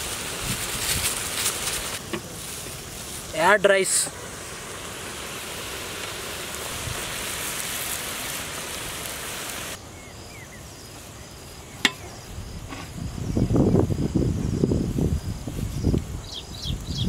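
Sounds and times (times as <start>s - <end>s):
vegetables sizzling in a wok: 0.0s - 13.3s
insects chirping: 0.0s - 17.0s.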